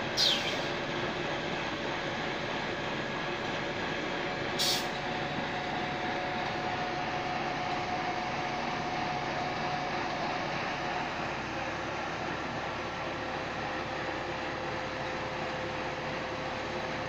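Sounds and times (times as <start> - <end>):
fire engine droning: 0.0 - 17.0
short hiss: 4.6 - 4.9.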